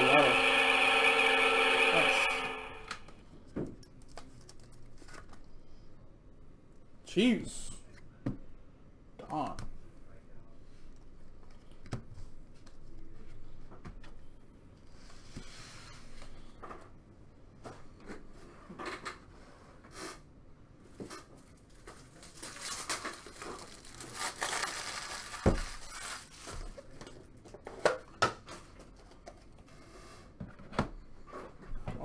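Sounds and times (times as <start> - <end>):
crinkling: 21.6 - 27.2.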